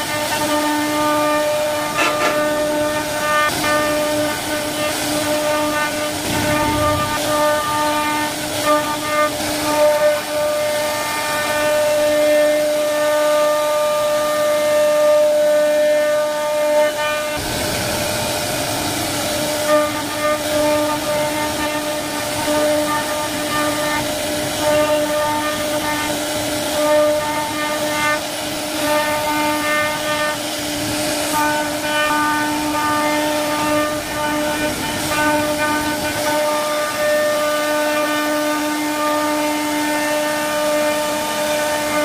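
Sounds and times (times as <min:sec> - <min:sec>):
cutter carving wood: 0:00.0 - 0:13.1, 0:15.9 - 0:18.3
router spindle whine: 0:00.0 - 0:14.8.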